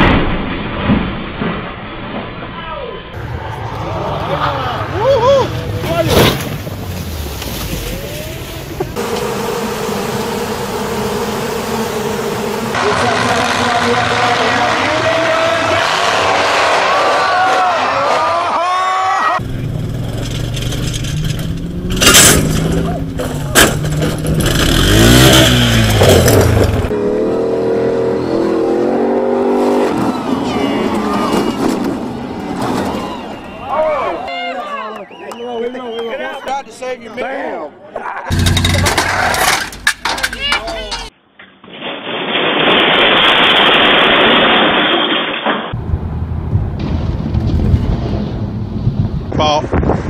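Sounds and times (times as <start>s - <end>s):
truck engine revving: 5.6s - 17.9s, 19.4s - 33.7s, 38.3s - 41.1s
loud rising and falling sound: 8.9s - 18.4s
swarm of bees buzzing: 9.0s - 14.3s.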